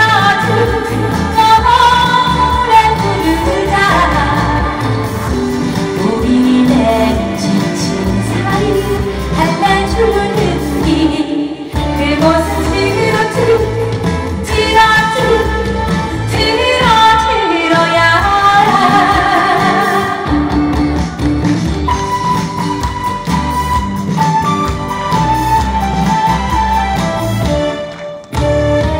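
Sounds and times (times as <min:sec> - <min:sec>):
woman singing into microphone: 0:00.0 - 0:22.2
pop accompaniment with steady beat: 0:00.0 - 0:28.9.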